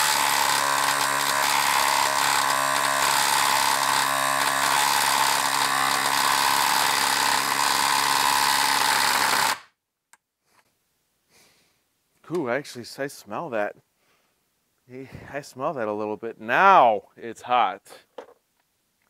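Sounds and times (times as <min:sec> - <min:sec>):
impact driver hammering: 0:00.0 - 0:09.7.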